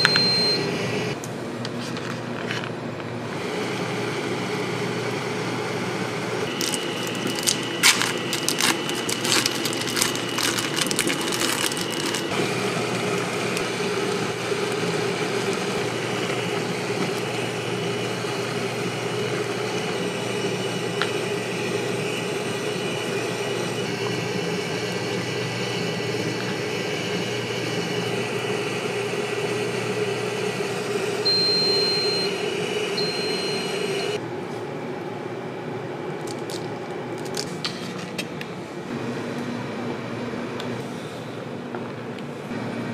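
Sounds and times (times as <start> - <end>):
short high beeps: 0.0 - 0.6, 33.0 - 33.7
machine hum: 2.7 - 37.6.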